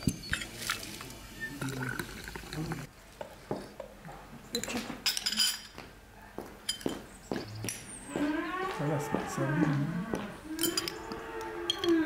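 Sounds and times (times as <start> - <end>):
teaspoons clinking on glassware: 4.6 - 5.8, 10.6 - 11.1.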